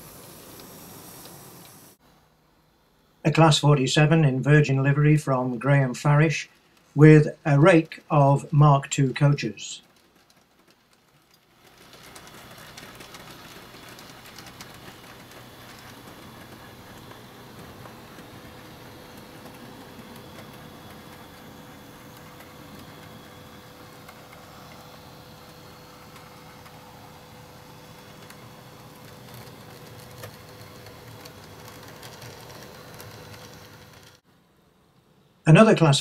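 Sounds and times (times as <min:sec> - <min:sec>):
model train motor whirring: 0:00.0 - 0:02.0, 0:04.0 - 0:34.2
faint clicks: 0:09.2 - 0:23.2.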